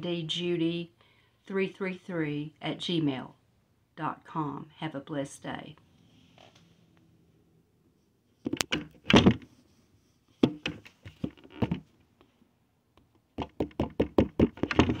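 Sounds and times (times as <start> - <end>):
phone handling knocks and clicks: 8.5 - 9.4, 10.4 - 11.8, 13.4 - 15.0.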